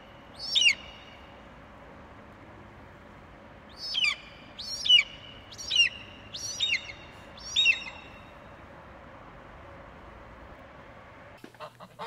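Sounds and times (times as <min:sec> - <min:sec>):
eagle shrill calls: 0:00.4 - 0:01.2, 0:03.7 - 0:08.2.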